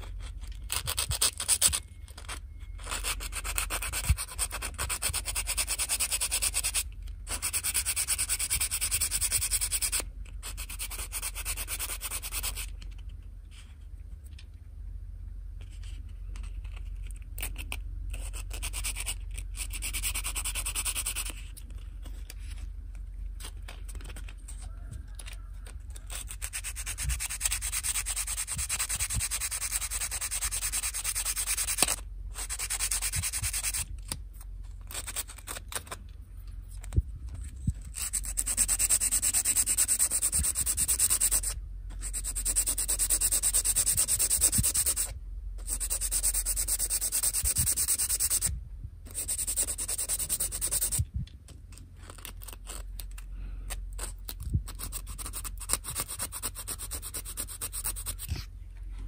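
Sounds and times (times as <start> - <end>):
sanding plastic: 0.0 - 1.8, 2.8 - 12.8, 17.4 - 22.6, 26.0 - 33.9, 34.8 - 36.0, 37.8 - 48.5, 49.1 - 51.1, 54.0 - 58.5
constant low hum: 0.0 - 59.0.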